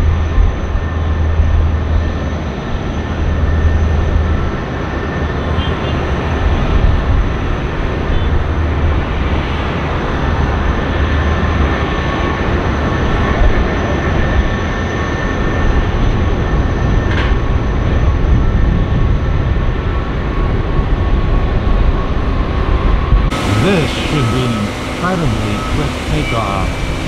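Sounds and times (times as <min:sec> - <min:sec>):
jet engines rumbling: 0:00.1 - 0:27.0
turbine whine: 0:21.6 - 0:27.0.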